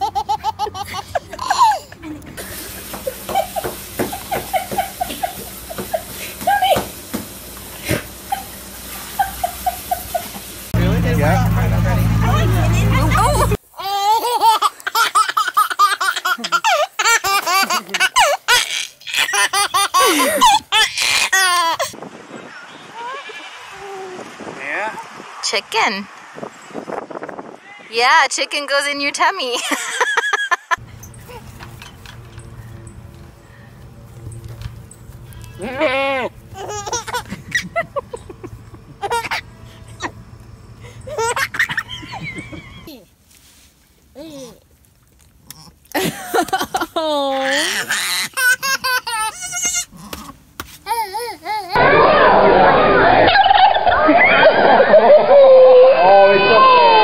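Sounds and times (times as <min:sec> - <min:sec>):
small child laughing: 0:00.0 - 0:02.4, 0:08.3 - 0:10.5, 0:13.2 - 0:22.0, 0:35.6 - 0:40.2, 0:41.0 - 0:43.1, 0:45.9 - 0:49.9
farm animal bleating: 0:35.3 - 0:36.4.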